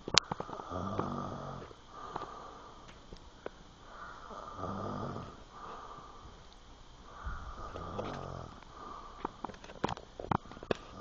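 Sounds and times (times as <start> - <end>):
man snoring: 0.4 - 2.6, 3.9 - 6.2, 7.2 - 9.2
breathing: 1.6 - 6.5, 7.1 - 9.8.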